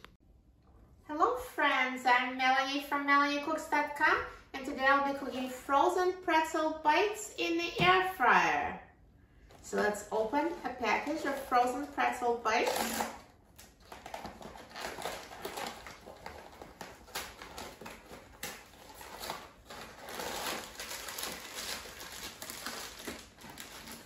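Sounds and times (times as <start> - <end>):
plastic bag crinkling: 10.2 - 24.0
cardboard box tearing open: 13.8 - 24.0.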